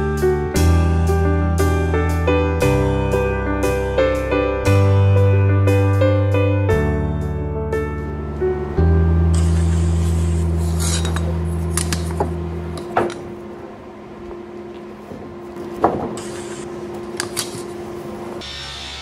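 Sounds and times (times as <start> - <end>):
metal ruler scraping on wood: 10.6 - 11.3.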